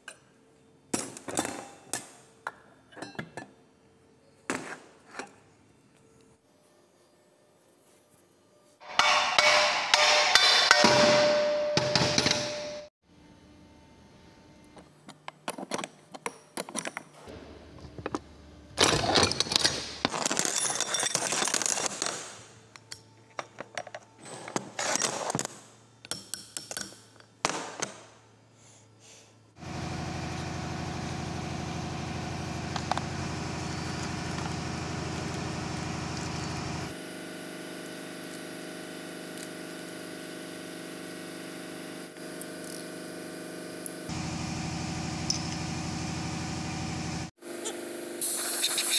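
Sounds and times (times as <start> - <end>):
steady mechanical hum: 0.0 - 20.1, 22.4 - 48.9
metal tools clinking on workbench: 18.8 - 21.8.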